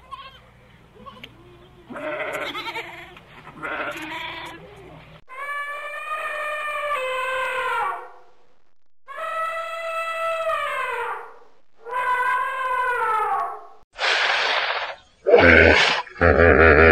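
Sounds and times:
goat bleating: 0.0s - 5.0s.

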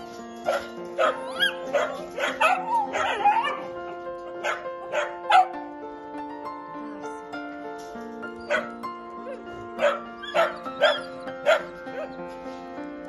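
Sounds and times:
dogs barking and yelping: 0.0s - 5.6s, 8.3s - 12.4s
soft background music: 0.0s - 13.0s.

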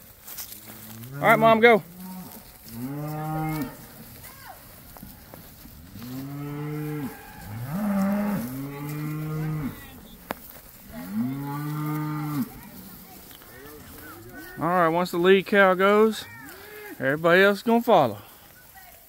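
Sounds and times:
cattle mooing: 1.0s - 3.9s, 5.9s - 10.2s, 10.9s - 12.9s.

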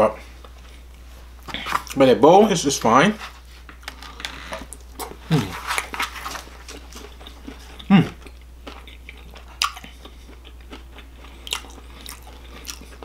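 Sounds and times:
person chewing: 3.7s - 13.0s
person humming: 5.2s - 5.6s, 7.9s - 8.2s.

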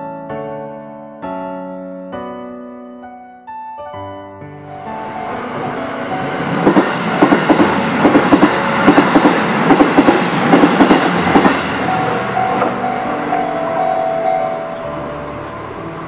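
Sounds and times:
train wheels clattering over rails: 5.2s - 13.2s.

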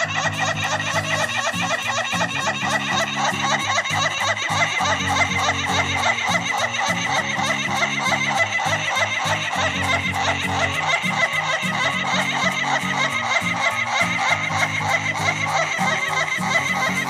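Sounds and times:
background music with low notes: 0.0s - 17.0s.

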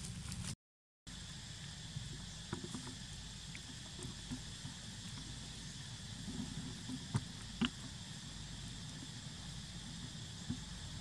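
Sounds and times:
dry leaves rustling: 0.0s - 0.6s
high insect drone: 1.1s - 11.0s
low steady rumble: 1.1s - 11.0s.

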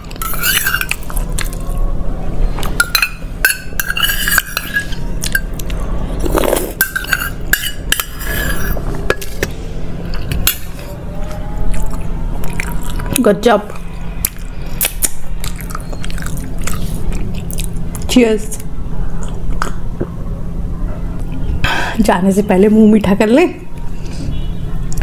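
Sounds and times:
steel spoon clinking on a bowl: 0.0s - 1.5s, 2.8s - 5.7s, 6.7s - 9.4s.

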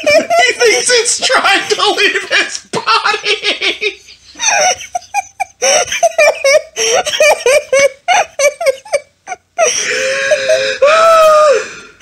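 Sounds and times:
man wailing: 0.0s - 3.8s, 10.3s - 11.7s
man laughing hard: 0.0s - 11.6s.

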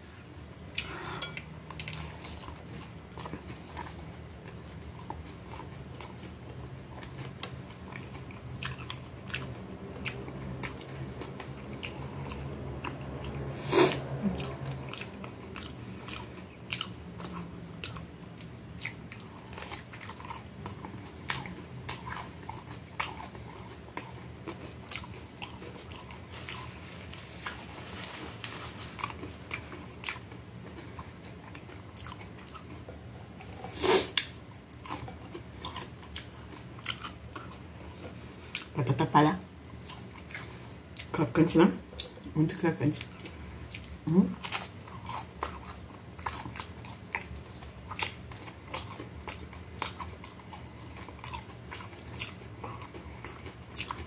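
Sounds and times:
crunchy chewing: 0.7s - 38.8s, 43.0s - 54.0s.

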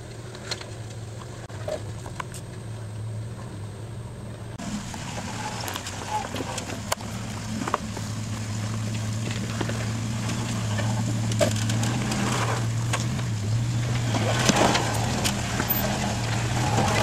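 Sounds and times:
engine running low hum: 0.0s - 17.0s
tyres crunching over rock: 4.6s - 17.0s.

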